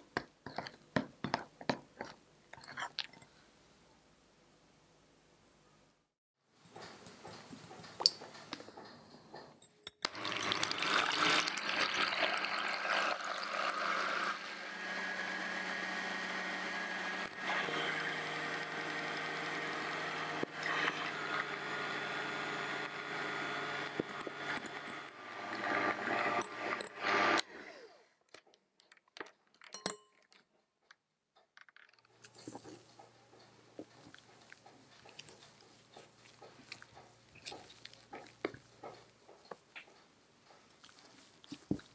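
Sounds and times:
electric hand mixer whipping: 0:10.1 - 0:28.0.

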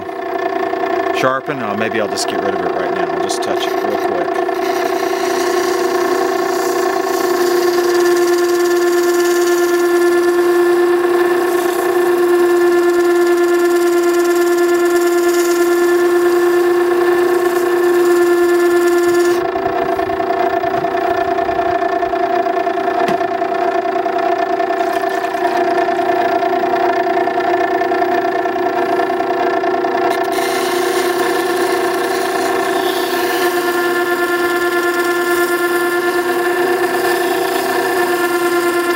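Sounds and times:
electric motor humming: 0:00.0 - 0:38.9
steel scraping on stone: 0:03.6 - 0:19.4, 0:24.8 - 0:26.1, 0:30.1 - 0:38.9.

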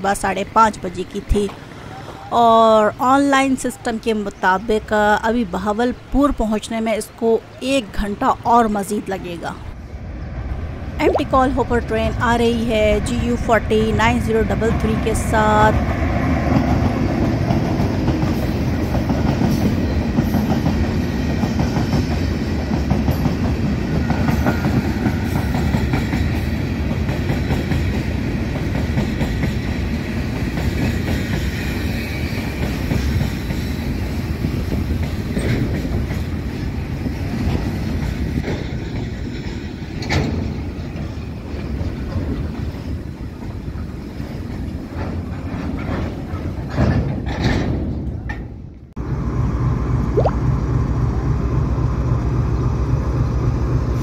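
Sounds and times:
diesel locomotive passing: 0:00.0 - 0:54.0
train wheels clattering over rails: 0:16.4 - 0:48.6.

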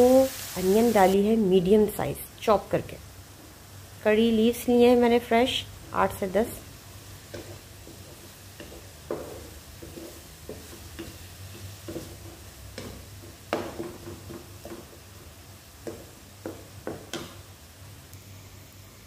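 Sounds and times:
onions sizzling: 0:00.0 - 0:19.0
spatula scraping and knocking wok: 0:07.0 - 0:17.6.

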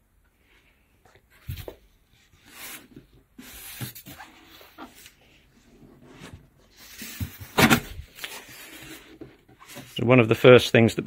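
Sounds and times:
cardboard flaps rustling and scraping: 0:01.3 - 0:10.3.

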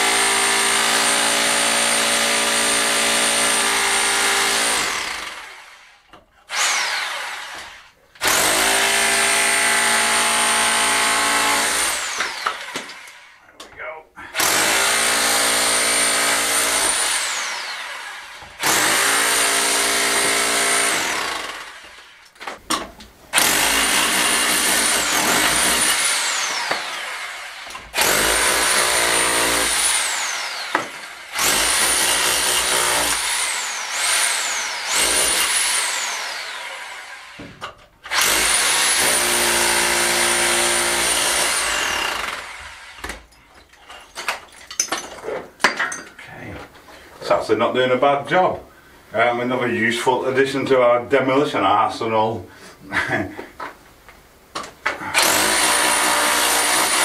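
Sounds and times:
rotary hammer chiselling stone: 0:22.7 - 0:27.0, 0:55.2 - 0:57.0.

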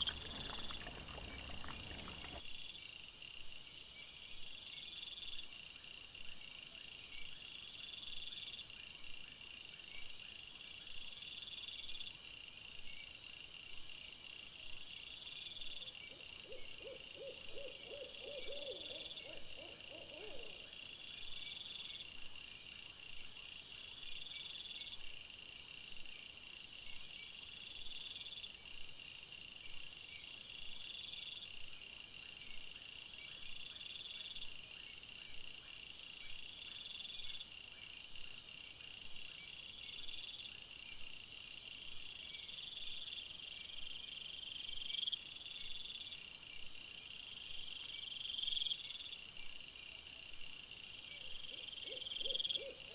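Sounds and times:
night insects trilling: 0:00.0 - 0:52.9
low repeated animal call: 0:16.3 - 0:20.7, 0:51.4 - 0:52.9.

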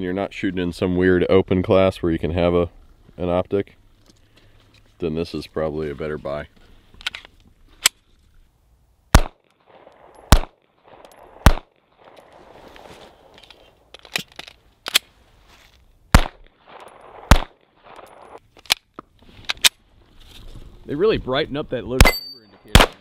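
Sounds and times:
pistol shots: 0:09.1 - 0:11.8, 0:16.1 - 0:18.4, 0:22.0 - 0:23.0.

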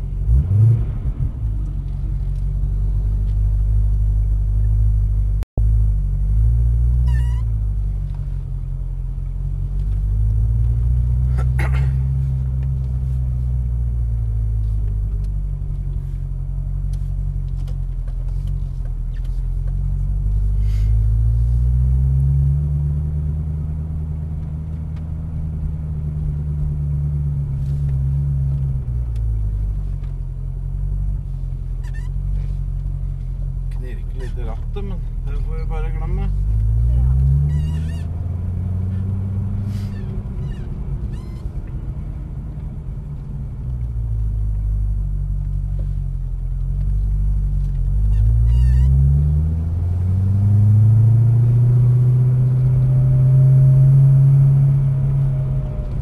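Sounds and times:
car engine at low revs: 0:00.0 - 0:56.0.

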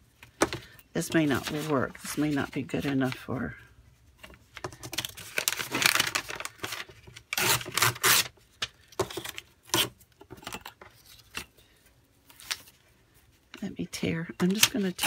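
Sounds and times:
paper tearing and rustling: 0:05.0 - 0:08.3.

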